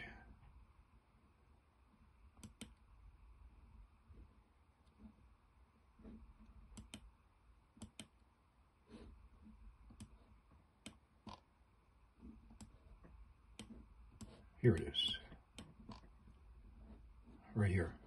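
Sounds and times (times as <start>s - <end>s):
faint computer mouse clicks: 2.4s - 2.8s, 6.7s - 7.1s, 7.8s - 8.2s.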